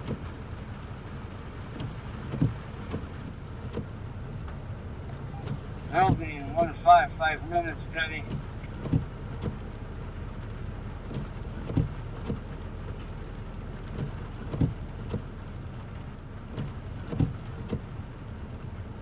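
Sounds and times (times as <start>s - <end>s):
windshield wipers knocking: 1.6s - 4.6s, 5.4s - 7.0s, 8.1s - 12.7s, 13.3s - 15.4s, 16.0s - 17.9s
steady low hum: 5.3s - 9.1s.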